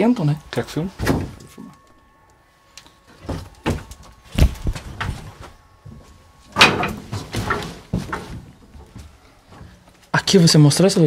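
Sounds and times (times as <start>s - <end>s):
footsteps on wooden floorboards: 6.8s - 10.1s.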